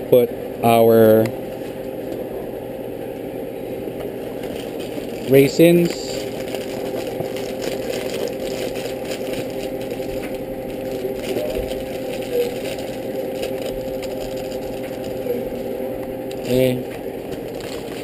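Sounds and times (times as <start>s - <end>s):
steady low hum: 0.0s - 18.0s
plastic bag crinkling: 4.3s - 18.0s.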